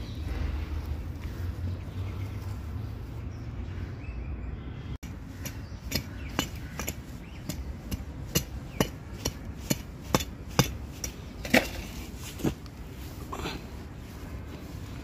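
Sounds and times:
hand tool striking stony soil: 5.3 - 12.7.

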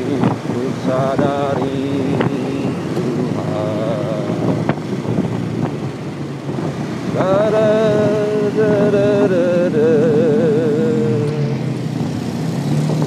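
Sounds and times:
person singing with vibrato: 0.0 - 4.6, 7.1 - 11.7
wind and road noise: 0.0 - 13.0.

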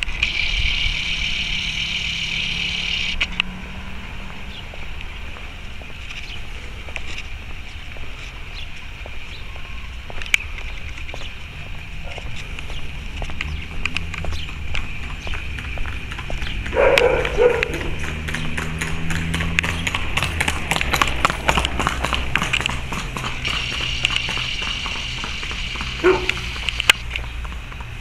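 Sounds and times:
skateboard wheels rolling on asphalt: 3.1 - 28.0
wheels clicking over cracks: 10.1 - 28.0.

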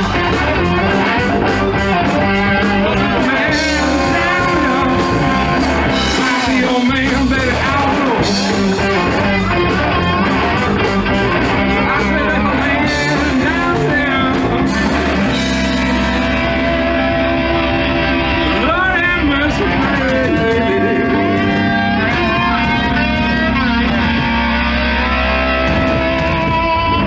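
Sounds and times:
drums: 0.0 - 27.0
electric guitar: 0.0 - 27.0
man singing: 2.4 - 17.0, 18.3 - 24.6.

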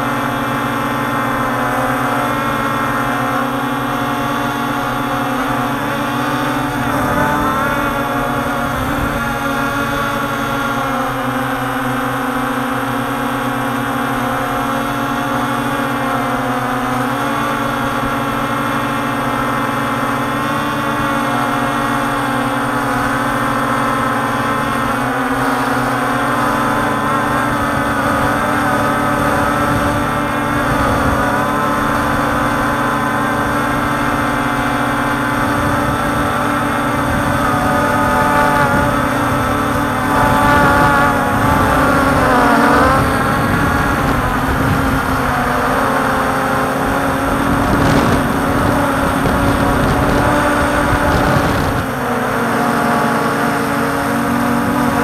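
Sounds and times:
drone motors buzzing: 0.0 - 55.0.

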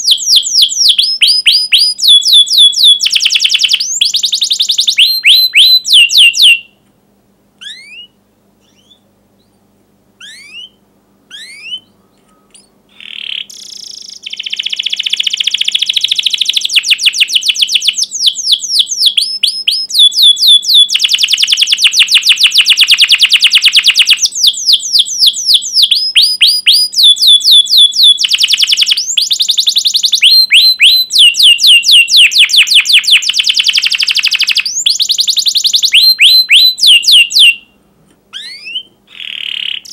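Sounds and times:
canary chirping and trilling: 0.0 - 6.8, 7.6 - 9.6, 10.2 - 39.9.

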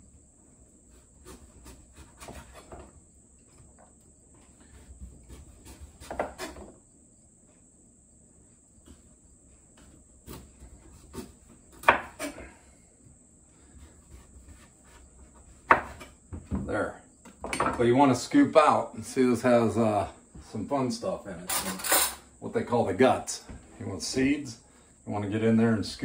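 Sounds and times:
knife scraping squash rind: 0.8 - 2.9, 4.4 - 6.7, 9.8 - 12.5.

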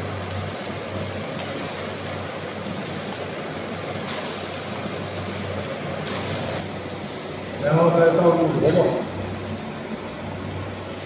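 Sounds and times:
meat sizzling in a wok: 0.0 - 7.7.

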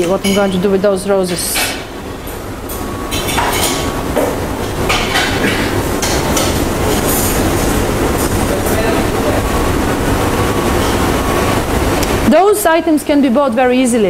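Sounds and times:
kitchen ventilation rumble: 0.0 - 14.0.

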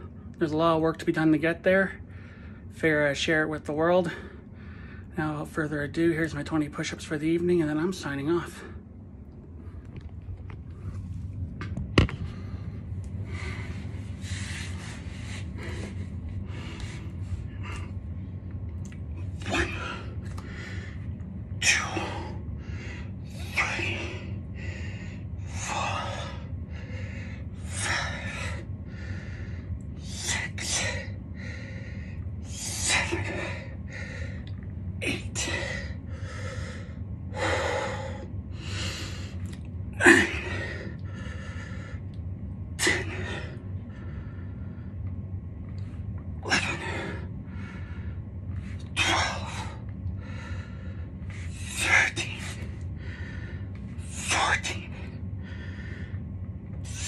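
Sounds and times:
low hum: 0.0 - 57.0
man breathing hard: 2.0 - 2.8, 4.0 - 5.2, 8.4 - 45.3, 46.4 - 57.0.

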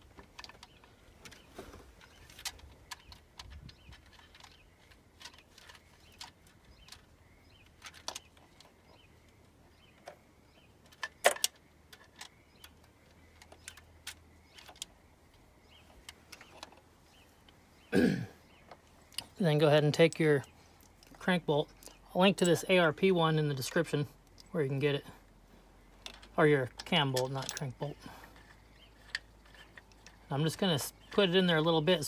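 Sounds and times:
short vocal sound: 17.9 - 18.4.

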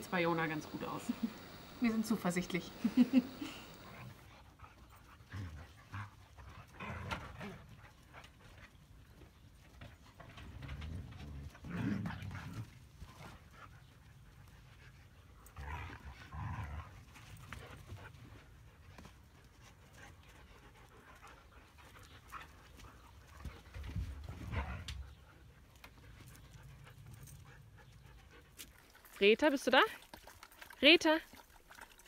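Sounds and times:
dogs panting: 0.0 - 8.8, 16.9 - 29.4.

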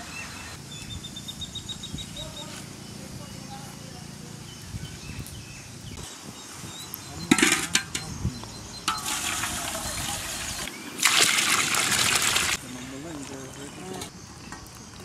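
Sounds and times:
water pouring into metal pot: 8.9 - 12.6.

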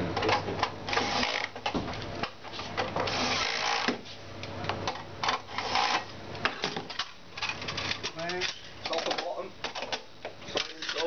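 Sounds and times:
cordless drill running: 3.1 - 3.9.

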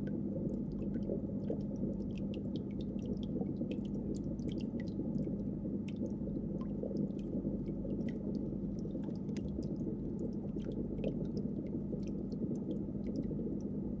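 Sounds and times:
low hum and rumble: 0.0 - 14.0.

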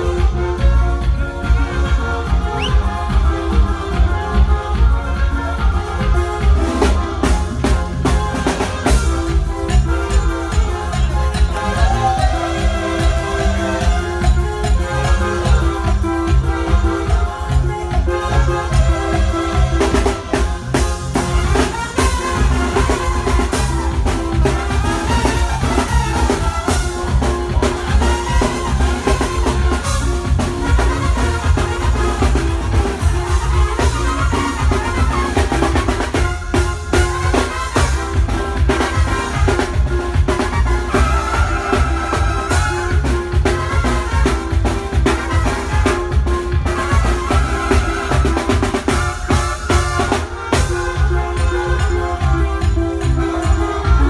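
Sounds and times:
brass band playing: 0.0 - 54.0
drums: 0.0 - 54.0
repeating bass line: 0.0 - 54.0
trumpets playing melody: 0.0 - 54.0.

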